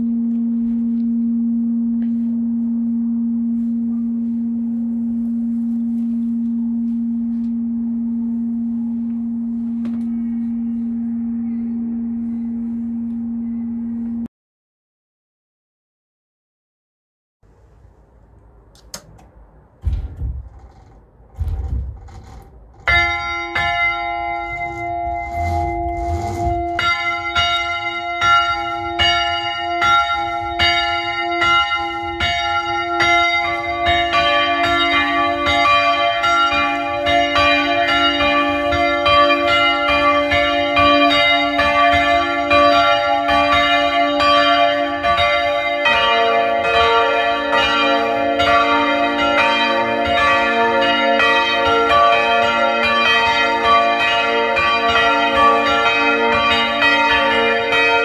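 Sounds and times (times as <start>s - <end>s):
low thuds: 17.6s - 32.7s
church bells ringing: 19.6s - 58.0s.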